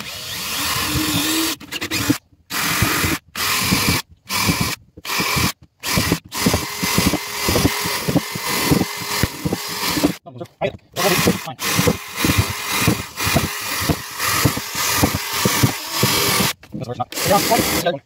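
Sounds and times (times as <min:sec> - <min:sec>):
cordless drill boring metal: 0:00.0 - 0:10.2, 0:11.0 - 0:18.0.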